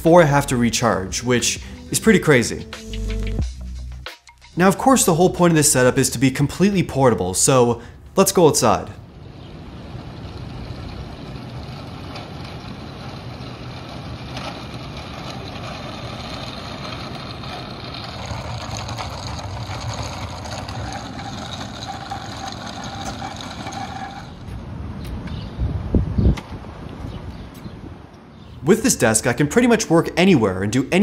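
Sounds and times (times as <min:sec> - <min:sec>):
casters rolling over asphalt: 0:04.7 - 0:25.4
thin whine: 0:09.5 - 0:24.4.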